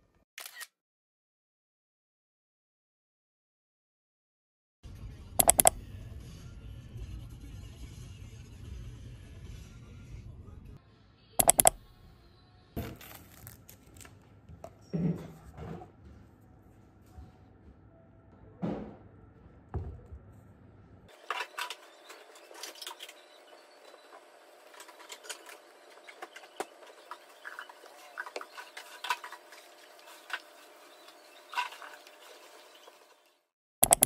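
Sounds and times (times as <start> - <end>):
laptop keyboard typing: 5.4 - 5.8, 11.4 - 11.9.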